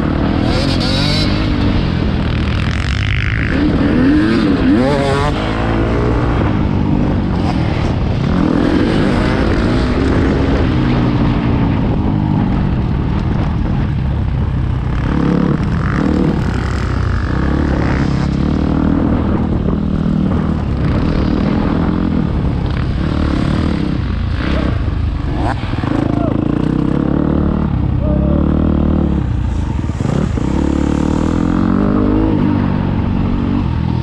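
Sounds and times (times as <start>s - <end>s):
motorcycle engine revving: 0.0s - 34.0s
rushing wind noise: 0.0s - 34.0s.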